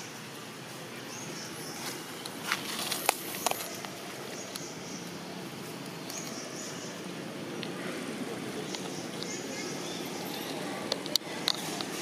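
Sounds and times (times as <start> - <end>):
steady outdoor hiss: 0.0 - 12.0
dry leaves crackling and rustling: 1.7 - 4.4.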